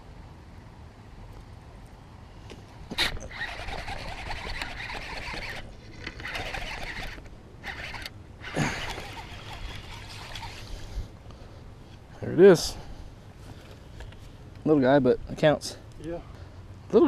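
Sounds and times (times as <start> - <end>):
fishing reel gear whirr: 2.9 - 11.0.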